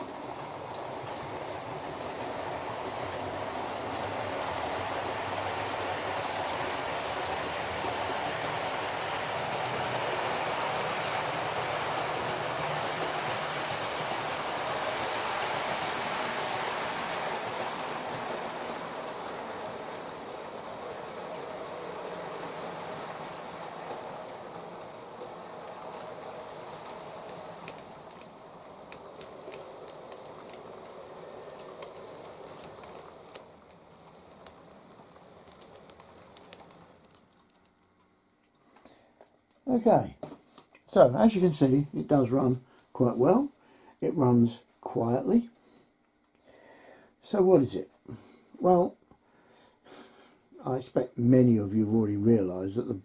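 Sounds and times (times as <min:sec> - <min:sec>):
model train motor and wheels: 0:00.0 - 0:37.7.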